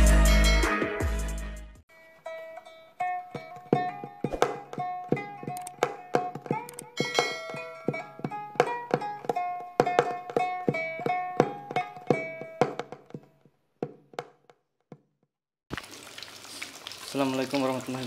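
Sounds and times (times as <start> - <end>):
plucked string melody: 1.9 - 13.5
oil sizzling in a frying pan: 15.7 - 18.0.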